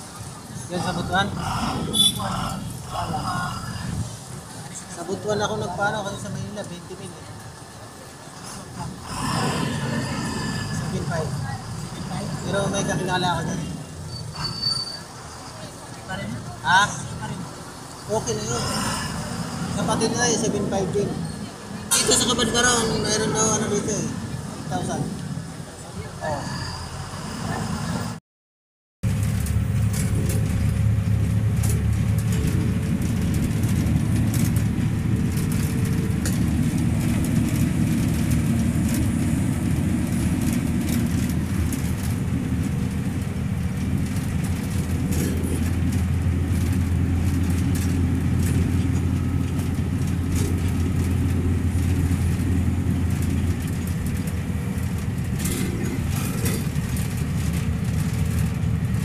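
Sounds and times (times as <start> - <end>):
bus engine hum: 0.0 - 28.2, 29.0 - 59.0
road rumble: 0.0 - 28.2, 29.0 - 59.0.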